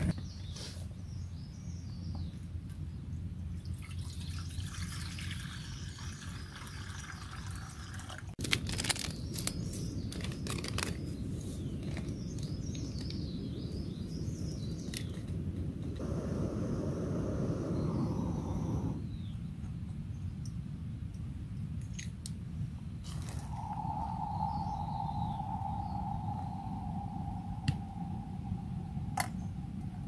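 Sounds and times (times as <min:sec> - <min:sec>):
steady low rumble: 0:13.2 - 0:19.3, 0:23.2 - 0:30.0
birds chirping: 0:16.0 - 0:19.5, 0:23.4 - 0:30.0.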